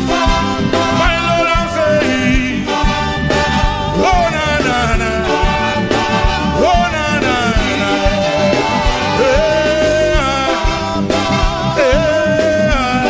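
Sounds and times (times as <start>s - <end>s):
gospel band playing: 0.0s - 13.0s
voices singing: 0.0s - 13.0s.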